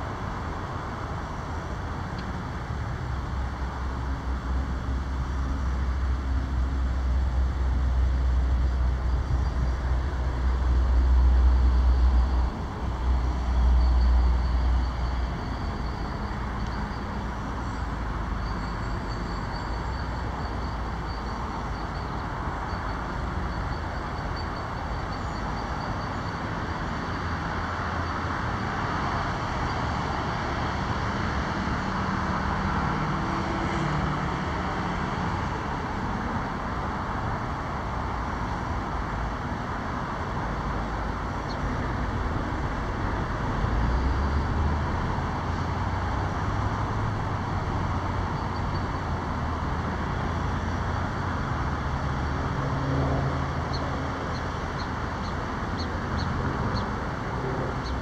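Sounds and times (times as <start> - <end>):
cars rushing past: 0.0 - 58.0
low engine hum: 0.0 - 58.0.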